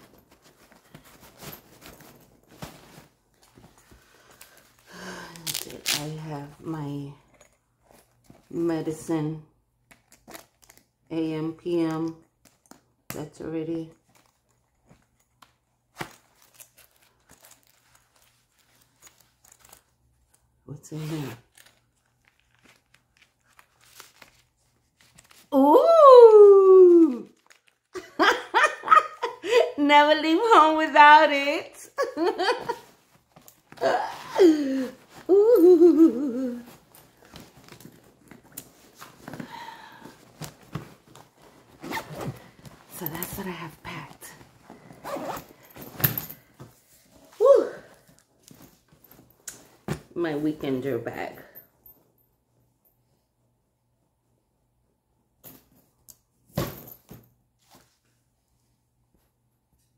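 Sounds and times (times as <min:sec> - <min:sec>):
fabric rustling and scraping: 0:00.0 - 0:04.8, 0:32.5 - 0:47.5
woman humming: 0:25.6 - 0:27.3, 0:33.8 - 0:36.7.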